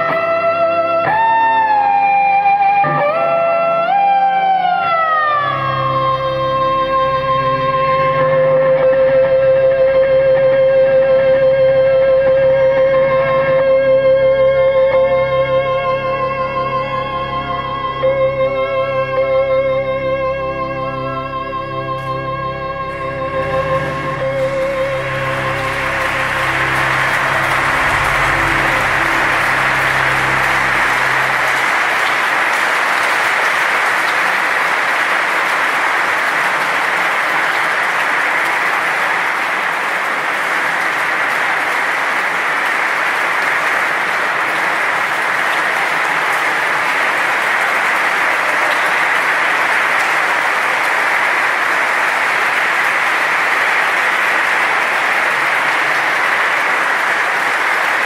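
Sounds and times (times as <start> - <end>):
electric guitar note: 0.0 - 33.3
audience applauding: 0.0 - 58.0.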